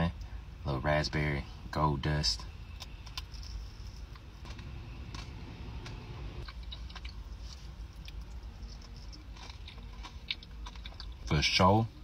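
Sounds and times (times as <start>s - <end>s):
low background rumble: 0.0s - 12.0s
crunchy chewing: 2.7s - 11.4s.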